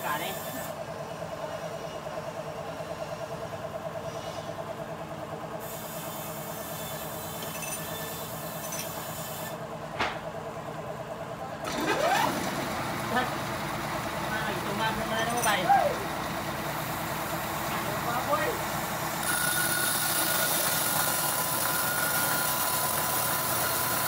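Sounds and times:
band sawmill humming: 4.8 - 24.0
short knock: 10.0 - 10.2.

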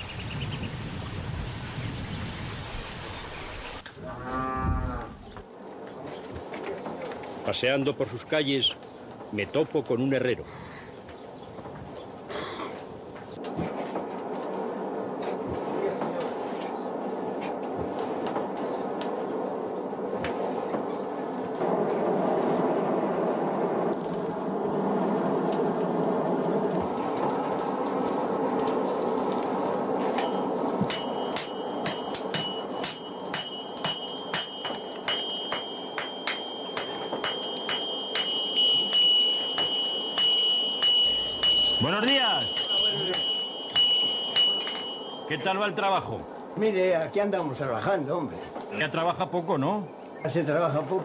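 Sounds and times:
forge fire rushing: 13.3 - 49.3
hammer striking anvil: 30.2 - 45.4
anvil ringing: 30.2 - 45.6.

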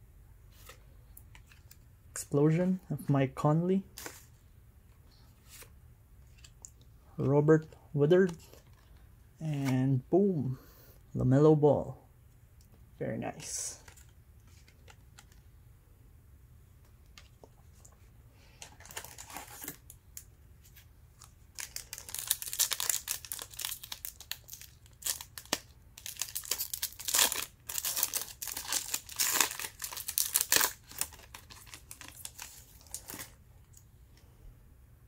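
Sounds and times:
wrapper crinkling and tearing: 21.2 - 33.4.

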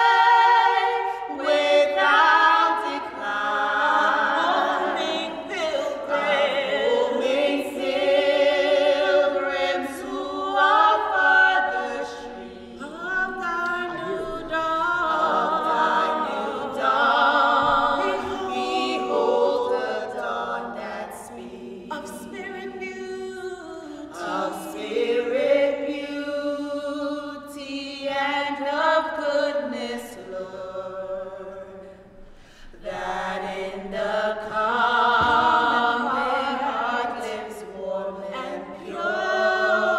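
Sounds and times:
choir singing a hymn: 0.0 - 39.9.

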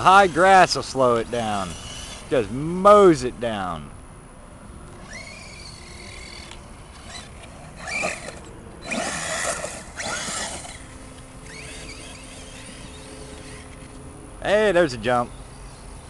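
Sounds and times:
grass thrashing under tyres: 0.0 - 2.7, 5.0 - 14.0
electric motor whining: 0.0 - 3.3, 4.7 - 14.4.

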